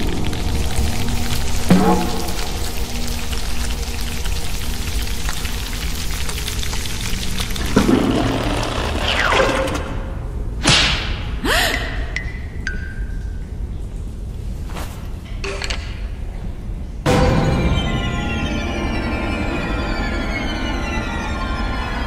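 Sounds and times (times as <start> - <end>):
low dark music drone: 0.0 - 10.5, 17.0 - 22.0.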